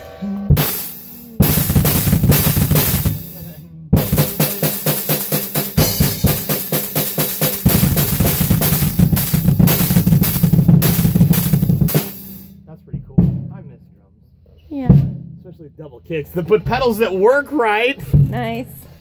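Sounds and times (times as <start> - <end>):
cymbal hits: 0.0 - 12.9
rapid bass drum kicks: 0.4 - 14.0, 14.8 - 17.1.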